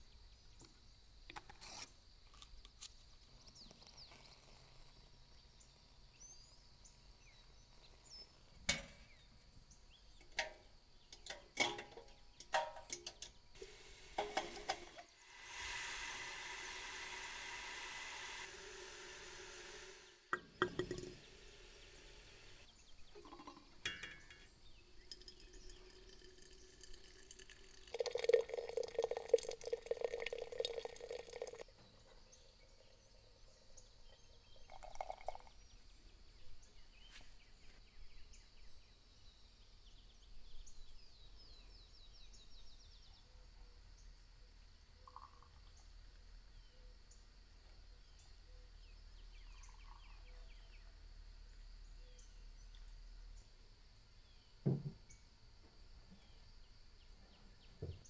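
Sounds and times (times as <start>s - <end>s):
hot water pouring into teapot: 13.6s - 31.7s, 34.6s - 35.6s
faint bird chirps: 31.7s - 55.3s.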